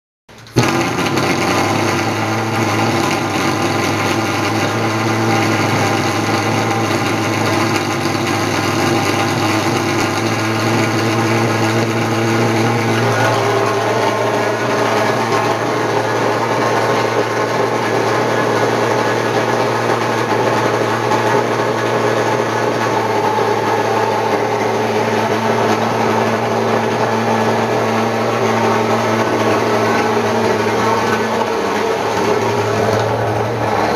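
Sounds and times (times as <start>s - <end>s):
fogging machine buzzing drone: 0.4s - 33.9s.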